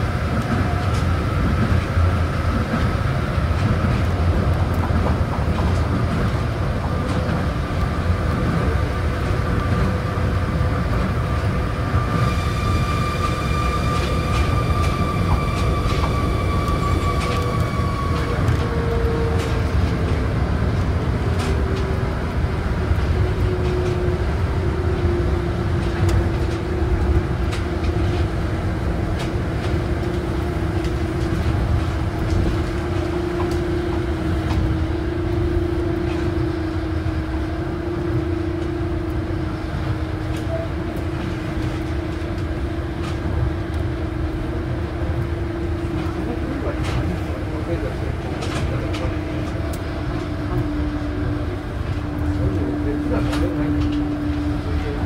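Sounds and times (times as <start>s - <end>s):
train motor whine: 11.5s - 47.3s.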